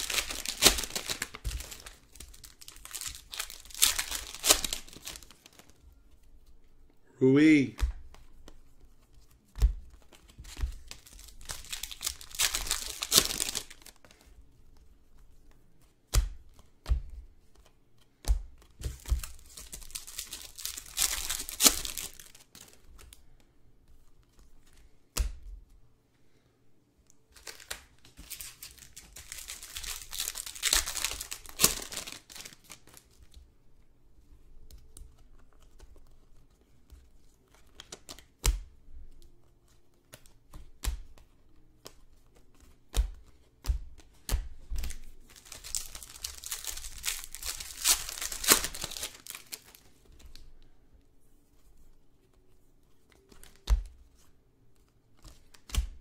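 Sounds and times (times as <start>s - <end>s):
card pack wrappers tearing: 0.0s - 5.7s, 10.9s - 13.9s, 19.2s - 22.8s, 27.4s - 33.0s, 45.3s - 49.8s.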